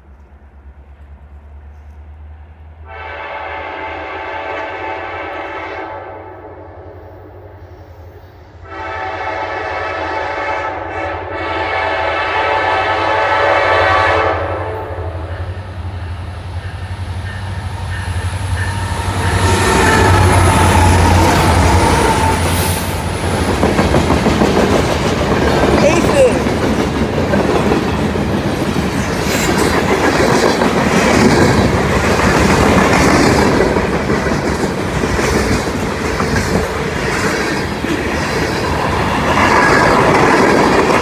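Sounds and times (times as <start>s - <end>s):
locomotive air horn blasts: 2.8s - 6.8s, 8.6s - 15.3s
locomotive engines rumbling: 14.8s - 41.0s
wheels rattling on rails: 15.8s - 41.0s.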